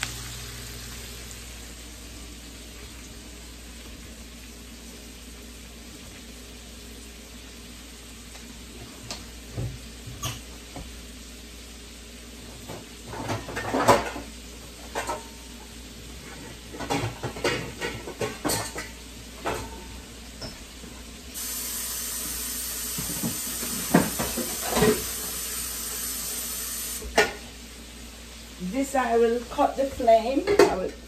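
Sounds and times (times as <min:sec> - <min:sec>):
dishes clinking and knocking: 0:12.7 - 0:15.4, 0:16.3 - 0:20.6, 0:23.0 - 0:25.1, 0:30.4 - 0:31.0
steady hiss: 0:21.2 - 0:29.9.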